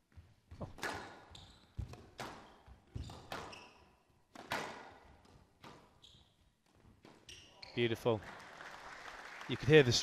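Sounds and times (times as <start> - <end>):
shoes squeaking on court floor: 0.1 - 8.0
squash ball hits: 1.8 - 3.6, 4.3 - 5.0.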